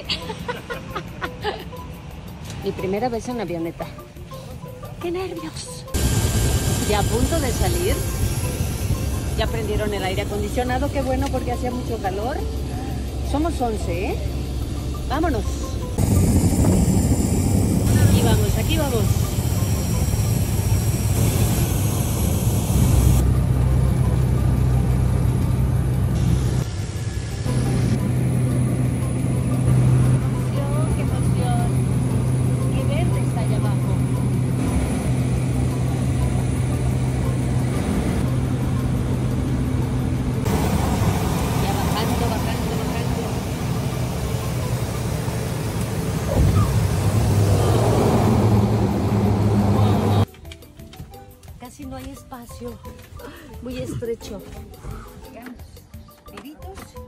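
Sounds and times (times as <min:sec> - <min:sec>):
plane engine and propeller drone: 0:05.9 - 0:50.3.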